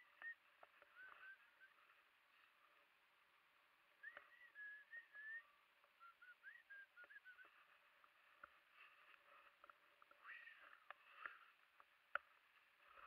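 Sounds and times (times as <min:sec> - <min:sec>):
faint high chirps: 0:00.0 - 0:02.9, 0:03.6 - 0:09.5.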